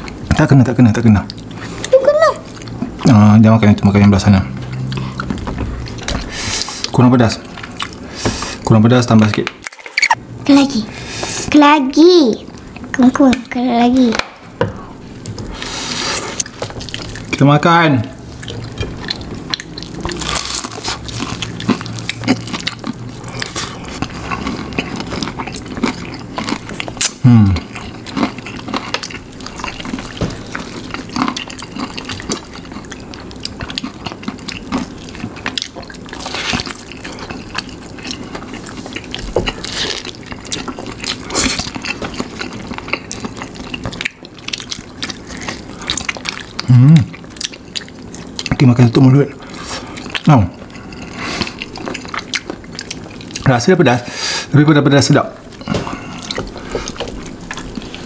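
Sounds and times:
chewing and mouth smacks: 4.5s - 8.0s, 16.3s - 17.4s, 18.3s - 53.5s, 55.4s - 58.0s.

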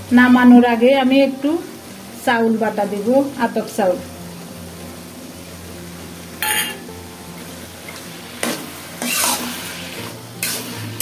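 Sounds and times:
metal spatula scraping pan: 6.4s - 6.8s, 7.9s - 11.0s.

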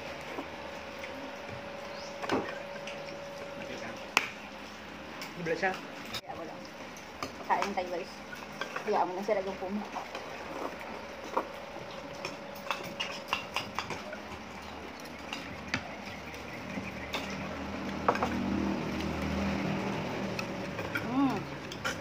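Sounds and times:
chopsticks and spoons clicking on bowls: 10.1s - 16.4s, 20.3s - 22.0s
voices: 20.9s - 21.6s.

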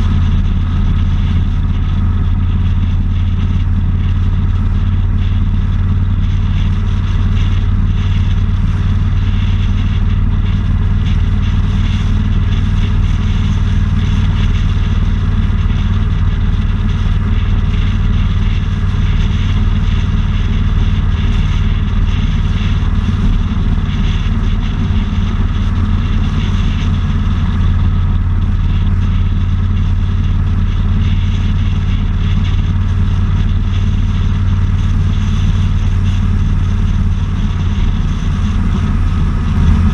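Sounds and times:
motorcycle engine droning: 0.0s - 39.9s
wind rushing: 38.2s - 39.9s.

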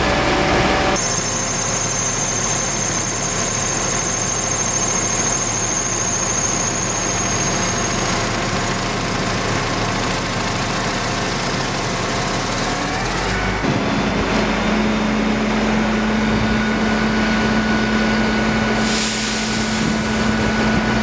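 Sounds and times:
truck engine running: 0.0s - 21.0s.

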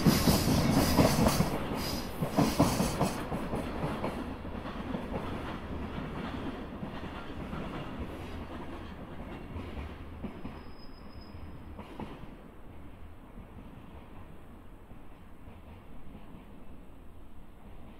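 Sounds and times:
train wheels rumbling: 0.0s - 17.9s.

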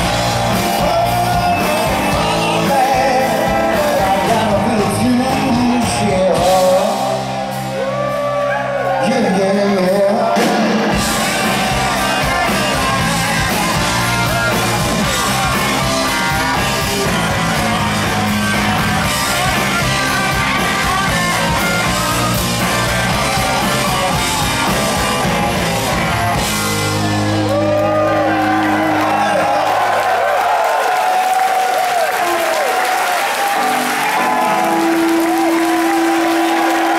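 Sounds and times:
live rock band playing: 0.0s - 30.2s, 32.2s - 36.9s
man singing: 0.4s - 7.3s, 8.8s - 25.7s.

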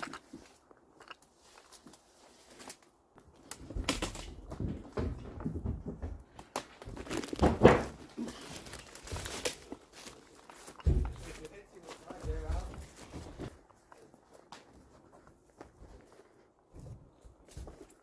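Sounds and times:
footsteps on debris: 1.3s - 18.0s
scuffs and knocks: 3.6s - 18.0s.

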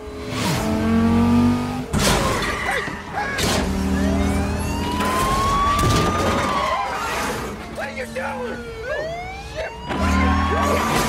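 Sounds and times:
car engines revving hard: 0.0s - 5.5s, 6.9s - 11.0s
police siren wailing: 2.6s - 11.0s.

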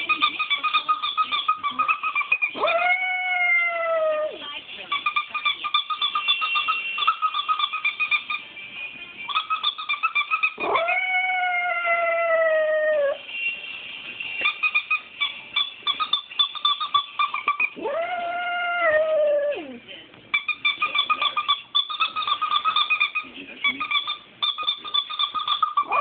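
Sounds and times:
toy squeaker squeaking: 0.0s - 3.0s, 4.9s - 8.6s, 9.3s - 10.6s, 14.4s - 17.8s, 20.3s - 26.0s
dog howling: 2.6s - 4.4s, 10.5s - 13.2s, 17.6s - 19.8s.

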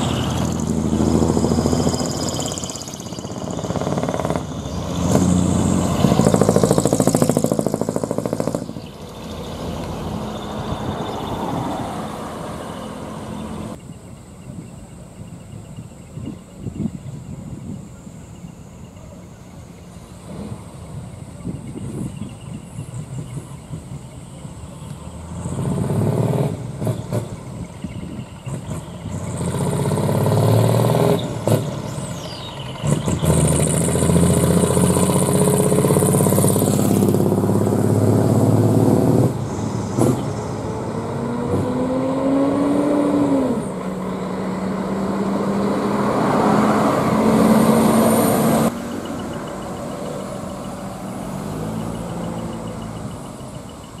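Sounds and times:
truck diesel engines revving: 0.0s - 13.8s, 19.8s - 54.0s.

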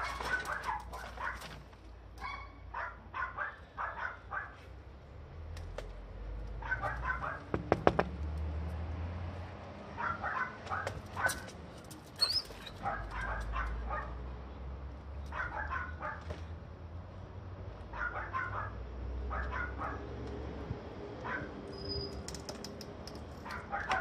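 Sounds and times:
dog barking: 0.0s - 1.5s, 2.2s - 4.6s, 6.6s - 7.5s, 10.0s - 11.5s, 12.8s - 14.2s, 15.3s - 16.3s, 17.9s - 20.1s, 21.2s - 21.5s, 23.4s - 24.0s
sharp knocks: 7.5s - 8.2s.

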